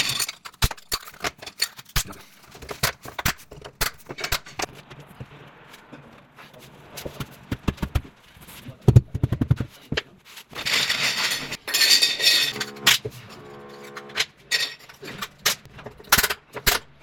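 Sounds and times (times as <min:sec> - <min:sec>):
plastic caps clattering on tile floor: 0:10.6 - 0:13.0.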